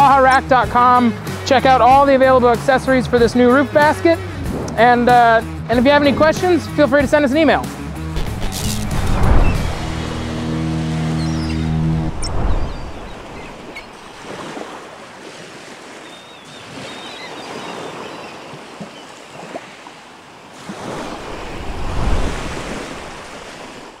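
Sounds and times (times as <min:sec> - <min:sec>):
ocean waves breaking: 0:07.5 - 0:24.0
wind on microphone: 0:08.1 - 0:14.2, 0:21.0 - 0:23.9.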